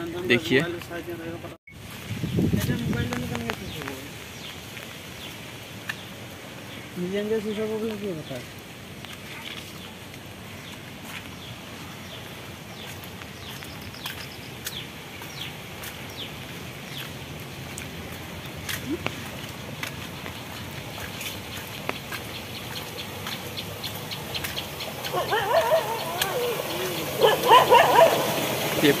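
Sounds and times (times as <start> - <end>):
steady rain hiss: 0.0 - 29.0
birds chirping and trilling: 2.2 - 17.8, 19.2 - 29.0
dogs yelping and whining: 25.0 - 28.3.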